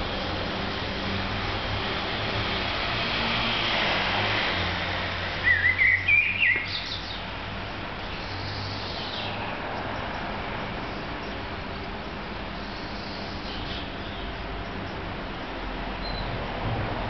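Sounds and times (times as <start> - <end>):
outdoor background hum: 0.0 - 17.0
songbird singing: 5.4 - 16.5.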